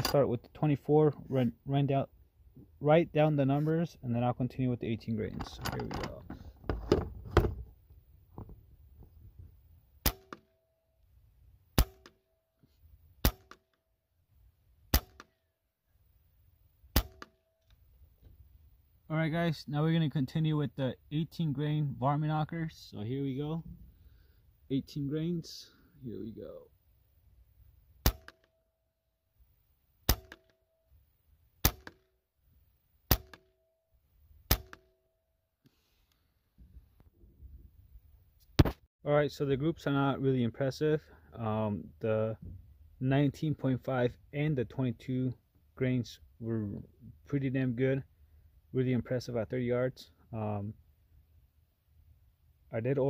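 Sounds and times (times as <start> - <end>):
air rifle shots: 10.0 - 10.5, 11.8 - 12.2, 13.2 - 13.6, 14.9 - 15.4, 16.9 - 17.4, 28.0 - 28.5, 30.1 - 30.5, 31.6 - 32.0, 33.1 - 33.5, 34.5 - 34.9.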